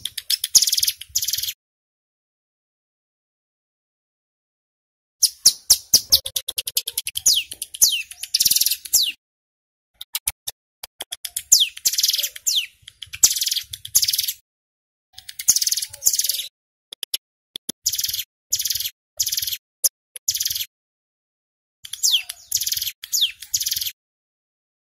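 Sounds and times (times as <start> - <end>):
warbler singing: 0.0 - 1.6, 5.2 - 9.2, 11.2 - 14.4, 15.2 - 16.5, 17.8 - 19.6, 20.3 - 20.7, 21.8 - 24.0.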